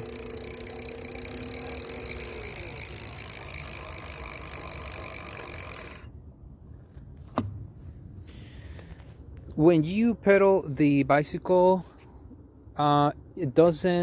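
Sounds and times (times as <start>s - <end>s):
freewheel ticking: 0.0s - 6.1s
hub motor whine: 0.0s - 6.2s.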